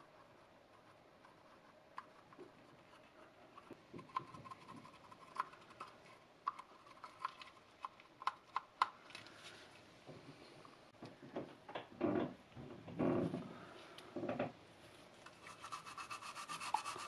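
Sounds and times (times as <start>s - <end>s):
soft rubbing: 14.8s - 17.0s.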